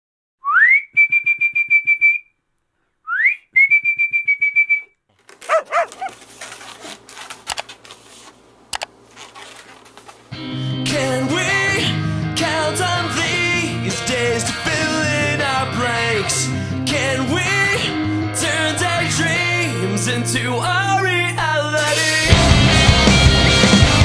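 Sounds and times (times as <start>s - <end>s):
warbling whistles: 0.4s - 2.3s, 3.1s - 4.9s
rustling: 5.1s - 10.3s
sharp clicks: 7.4s - 7.8s, 8.7s - 8.9s
music: 10.4s - 24.0s.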